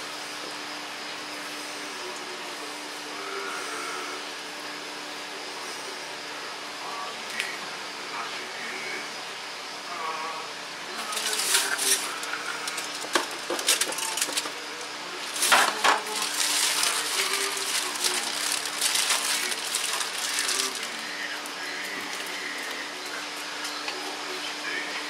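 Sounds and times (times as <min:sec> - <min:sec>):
rustling: 0:15.2 - 0:21.0
kitchenware clinking: 0:15.4 - 0:17.4.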